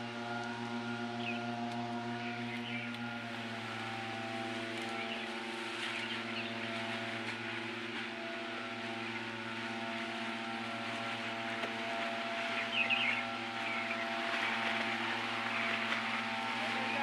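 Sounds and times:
small engine running: 0.0s - 17.0s.

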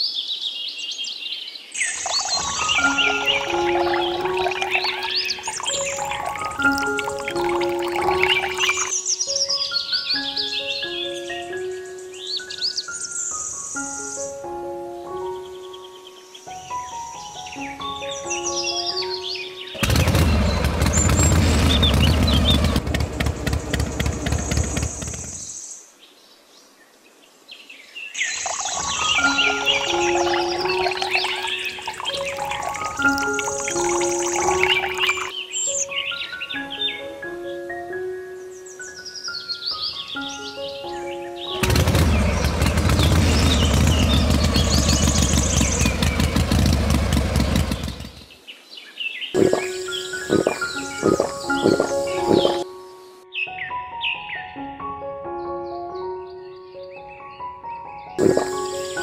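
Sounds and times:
birds chirping: 0.0s - 26.8s, 27.6s - 54.7s, 55.4s - 59.0s
rapid clicking: 19.8s - 25.4s, 41.6s - 48.2s
low engine-like rumble: 41.6s - 48.2s.

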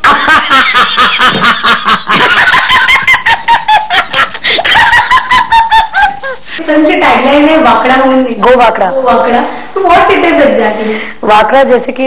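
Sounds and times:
man and woman laughing: 0.0s - 6.6s.

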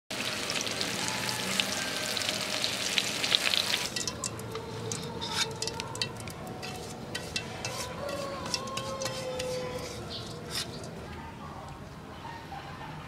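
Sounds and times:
deep-frying sizzle with pops: 0.1s - 6.5s.

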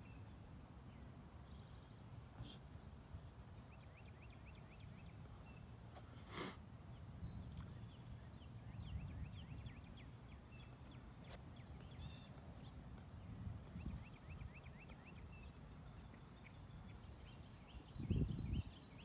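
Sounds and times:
small birds chirping: 0.1s - 6.2s, 6.8s - 19.0s
wind rumble on microphone: 7.0s - 10.4s, 11.2s - 16.0s, 16.8s - 19.0s.

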